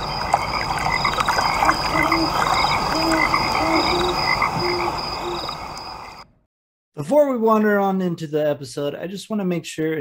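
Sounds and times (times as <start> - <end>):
frogs croaking: 0.0 - 6.3.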